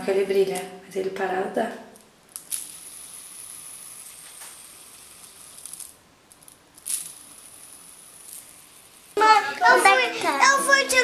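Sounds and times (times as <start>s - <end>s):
fidget spinner whirring: 2.3s - 11.0s.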